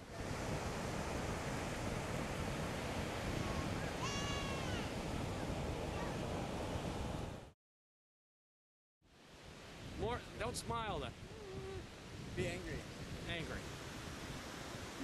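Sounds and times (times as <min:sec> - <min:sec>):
waves breaking on beach: 0:00.0 - 0:07.6, 0:09.1 - 0:15.0
high drawn-out cry: 0:04.0 - 0:04.9.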